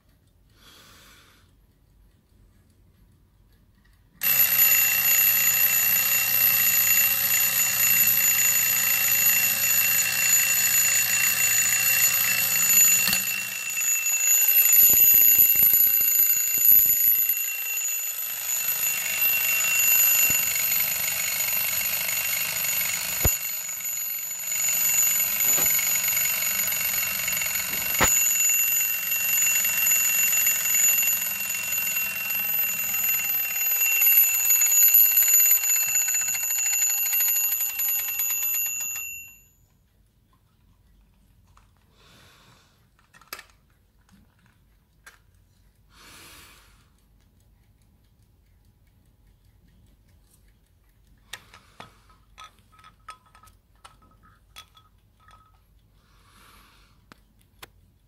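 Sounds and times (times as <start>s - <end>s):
clock alarm bell ringing: 4.2s - 39.7s.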